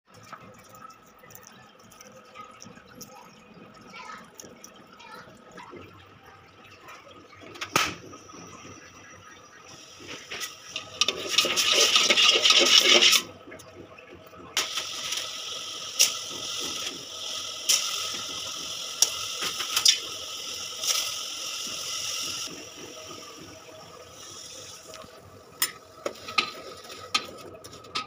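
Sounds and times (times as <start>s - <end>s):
water splashing into a pot: 6.8s - 13.6s, 14.5s - 28.0s.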